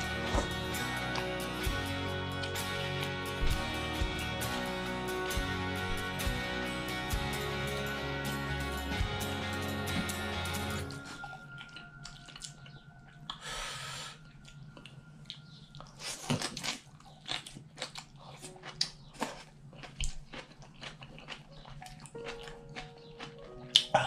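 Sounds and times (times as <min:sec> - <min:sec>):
wet chewing and mouth smacks: 0:10.9 - 0:13.4, 0:14.2 - 0:24.0.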